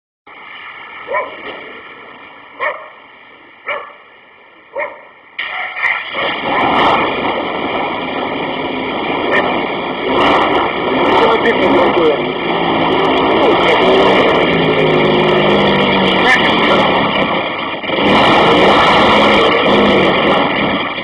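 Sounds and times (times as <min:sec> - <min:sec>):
dog barking: 0:01.1 - 0:01.4, 0:02.6 - 0:03.0, 0:03.6 - 0:04.0, 0:04.7 - 0:05.1, 0:09.3 - 0:09.5
loud steady rushing noise: 0:06.1 - 0:21.0.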